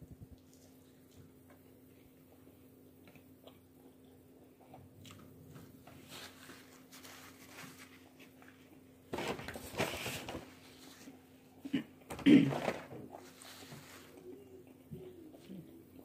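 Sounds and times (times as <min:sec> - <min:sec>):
person chewing food: 0:00.3 - 0:06.8
paper wrapper crinkling: 0:06.1 - 0:11.1.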